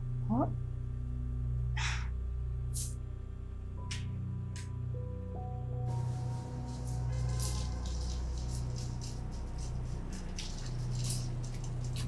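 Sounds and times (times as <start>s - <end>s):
steady low hum: 0.0s - 12.0s
stretcher trolley rattling on paving: 5.9s - 12.0s.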